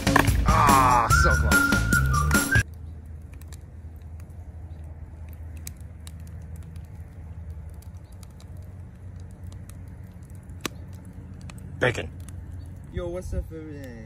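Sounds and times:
fat popping and crackling: 0.0s - 14.0s.

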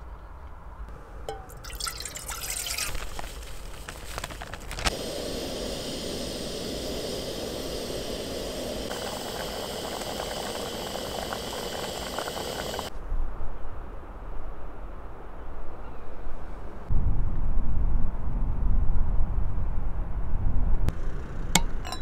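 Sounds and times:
water pouring into a saucepan: 1.4s - 3.3s, 8.8s - 12.9s
soup simmering hiss: 1.5s - 12.9s.

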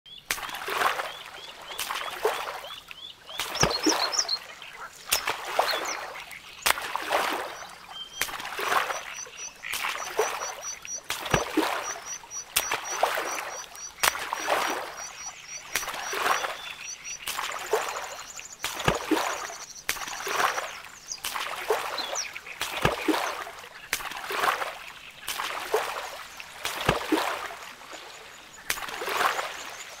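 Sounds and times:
birds chirping: 0.1s - 23.9s
paddle splashing in water: 0.3s - 29.9s.

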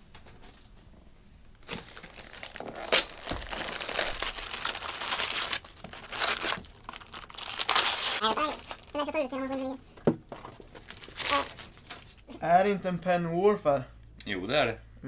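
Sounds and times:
wrapping paper tearing and crumpling: 1.6s - 9.7s, 10.7s - 12.3s.

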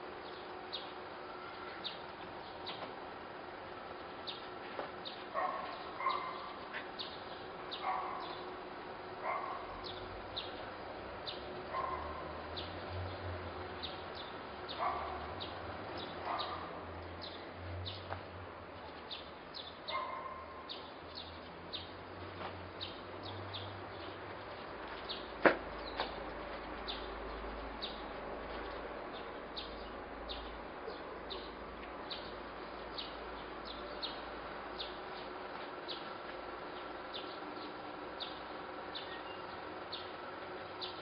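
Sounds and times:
dog yipping: 5.4s - 6.5s, 7.8s - 8.3s, 9.2s - 9.6s, 11.7s - 12.2s, 19.9s - 20.4s
high bird chirps: 39.0s - 40.1s.

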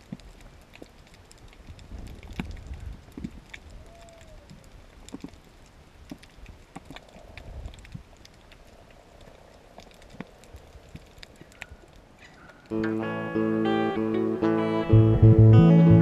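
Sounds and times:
faint underwater clicks and crackles: 0.0s - 12.7s.

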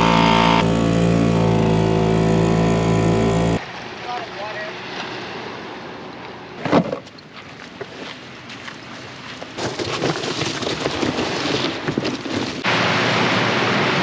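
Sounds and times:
dinghy dragged over pebbles: 9.4s - 12.7s.

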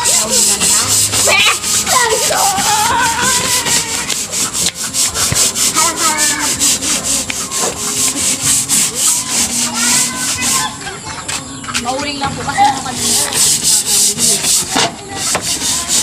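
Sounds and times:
scouring pad scrubbing wall: 0.0s - 10.9s, 11.8s - 16.0s.

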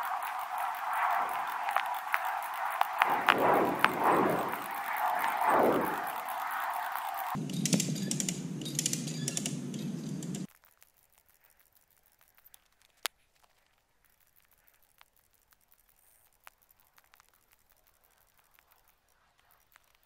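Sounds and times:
faint ticks: 0.0s - 20.0s.

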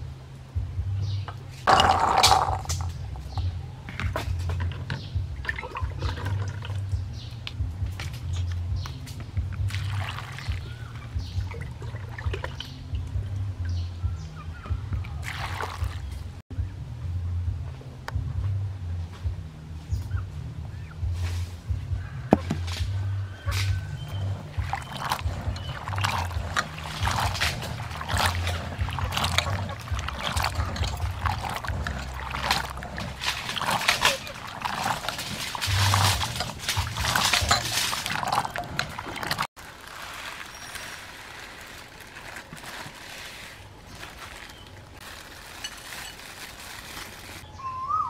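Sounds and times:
low steady hum: 0.0s - 47.6s
steady low hum: 15.8s - 38.6s
water pouring into metal bowl: 24.5s - 40.8s.

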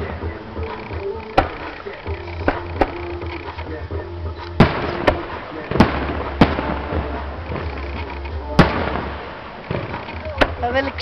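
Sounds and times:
fireworks banging: 0.0s - 11.0s
fireworks crackling: 0.0s - 11.0s.

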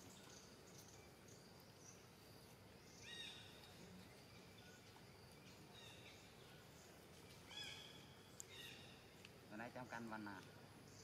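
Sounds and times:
faint outdoor ambience: 0.0s - 11.0s.

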